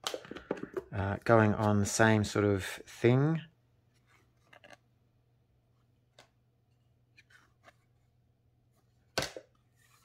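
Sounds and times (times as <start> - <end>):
cardboard cards being handled: 3.9 - 4.9.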